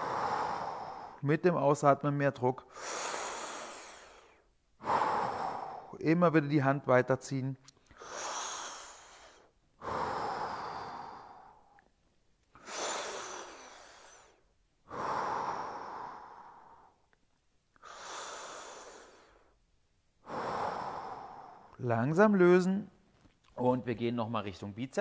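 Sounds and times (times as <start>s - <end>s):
man breathing deeply: 0.0s - 1.2s, 2.6s - 6.0s, 7.8s - 11.8s, 12.5s - 17.1s, 17.8s - 19.6s, 20.2s - 21.8s.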